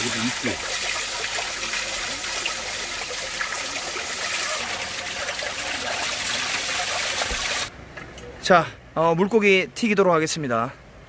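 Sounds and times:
water pouring and splashing: 0.0s - 7.7s.

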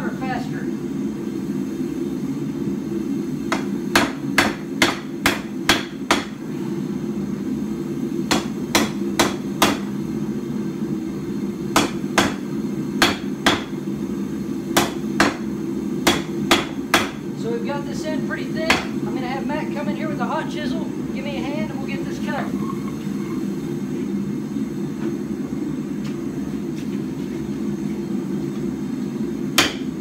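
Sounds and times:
hammer striking hot metal on anvil: 3.5s - 6.4s, 8.3s - 9.9s, 11.7s - 13.8s, 14.8s - 15.4s, 16.0s - 17.2s, 18.7s - 19.0s, 29.6s - 30.0s.

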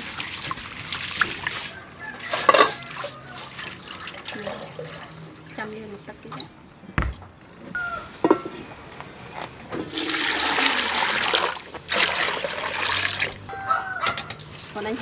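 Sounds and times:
water pouring into a pot: 0.0s - 5.2s, 9.8s - 13.4s.

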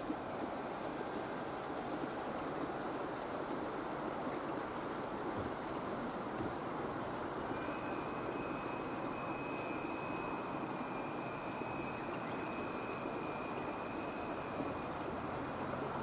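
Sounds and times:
outdoor background hiss: 0.0s - 16.0s
faint high steady tone: 7.5s - 15.2s.

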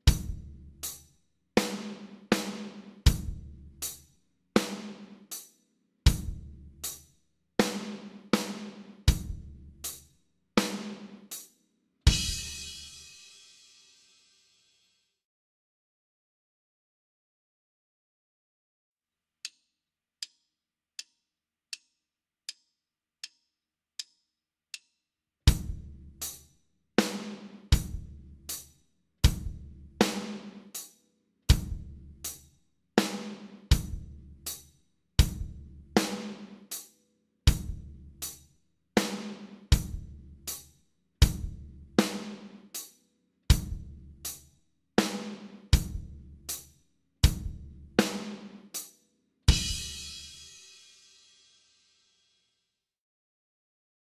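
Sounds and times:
slow drum kit beat: 0.0s - 1.0s, 1.6s - 4.0s, 6.1s - 7.0s, 7.6s - 10.0s, 10.6s - 11.4s, 12.1s - 13.7s, 25.5s - 26.4s, 27.0s - 30.9s, 31.5s - 32.4s, 33.0s - 34.6s, 35.2s - 36.8s, 37.5s - 38.4s, 39.0s - 42.9s, 43.5s - 44.4s, 45.0s - 48.8s, 49.5s - 51.2s.

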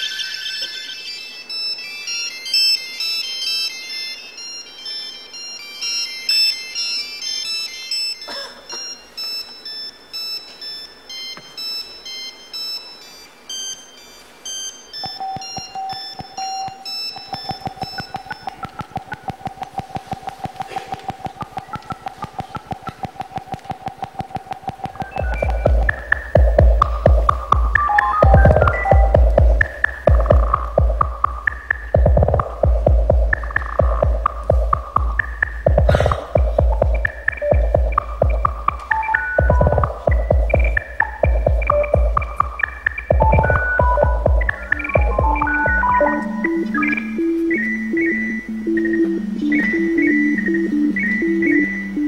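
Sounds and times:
mobile phones ringing: 0.0s - 52.0s
steady mid-pitched tone: 0.0s - 52.0s
fast even pulse: 14.5s - 52.0s.

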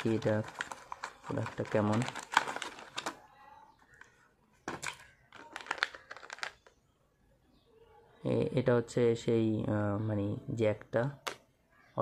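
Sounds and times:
plastic packaging crinkling: 0.0s - 3.3s, 3.9s - 6.8s.

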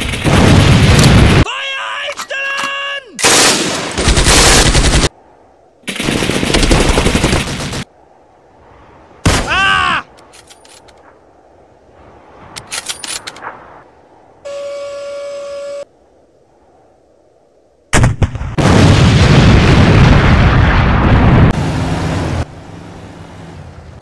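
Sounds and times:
machine-gun fire: 3.3s - 5.1s, 5.9s - 7.9s
short cry: 9.4s - 10.1s.

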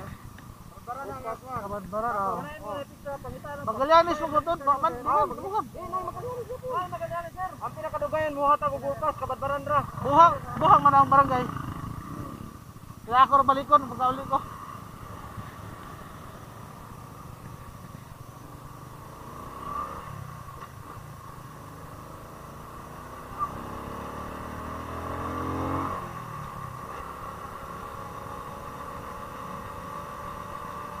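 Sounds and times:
small motorcycle engine: 13.8s - 31.0s.

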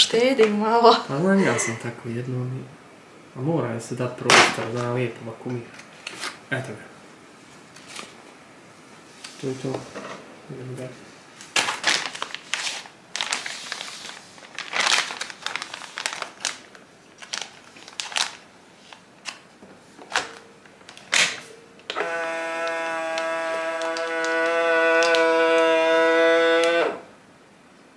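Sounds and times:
plastic bags crinkling: 11.4s - 21.1s, 22.8s - 25.6s.

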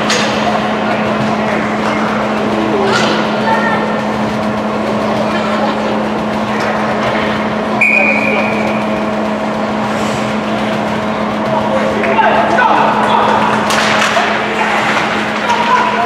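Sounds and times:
indistinct voices: 0.0s - 16.0s
low hum: 0.0s - 16.0s
referee's whistle blast: 7.8s - 8.6s
ice skating noise: 12.9s - 16.0s.

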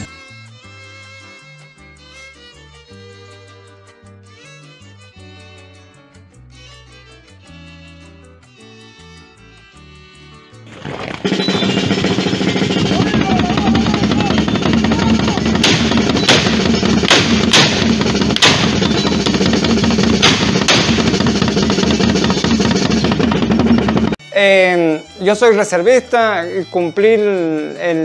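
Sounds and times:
sharp gunshots: 10.7s - 23.8s
band music with drum beat: 10.7s - 24.4s.

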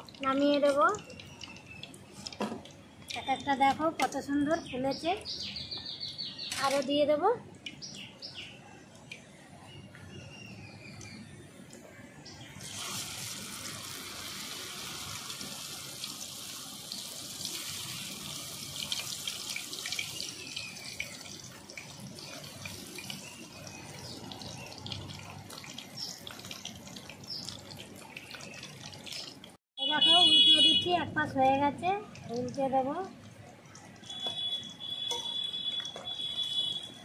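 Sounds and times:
fritters sizzling in hot oil: 12.6s - 29.5s.

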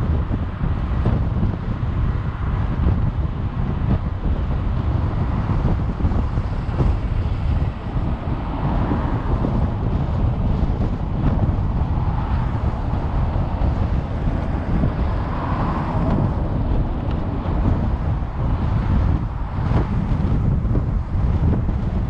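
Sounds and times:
car road and wind noise: 0.0s - 22.0s.

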